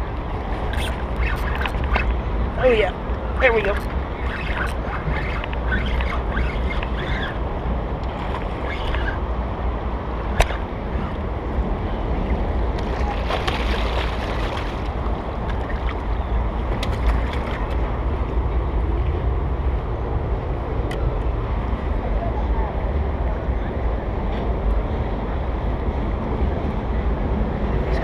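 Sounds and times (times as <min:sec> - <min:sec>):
wind rumble on microphone: 0:00.0 - 0:28.0
sharp click: 0:10.4 - 0:10.6.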